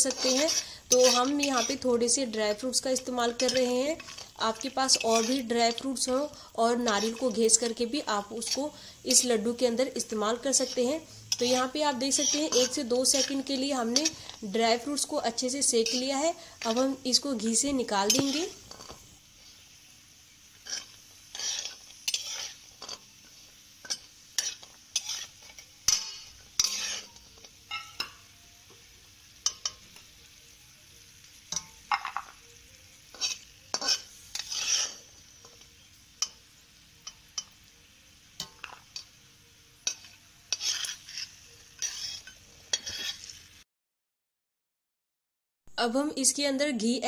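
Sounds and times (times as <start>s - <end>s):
metal spatula scraping a pan: 0.0s - 19.6s, 20.5s - 30.1s, 31.3s - 37.6s, 39.8s - 43.5s
light sizzle: 0.0s - 43.6s.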